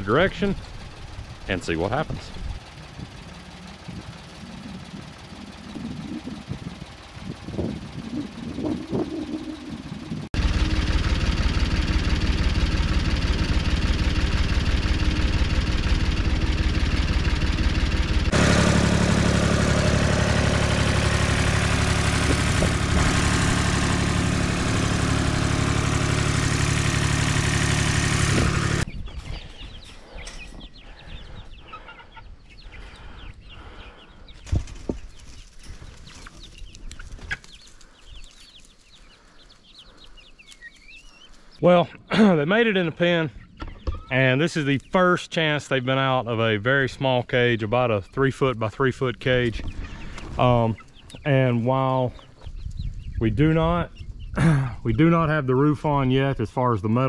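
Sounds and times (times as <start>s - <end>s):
tractor engine running under load: 0.0s - 28.9s.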